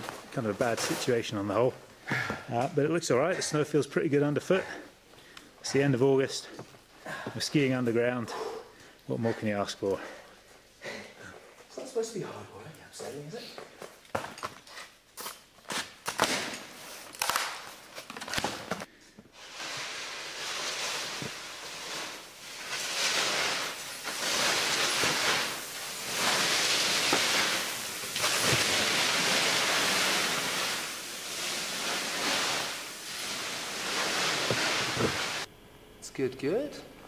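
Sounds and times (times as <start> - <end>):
skis scraping over snow: 19.4 - 35.5.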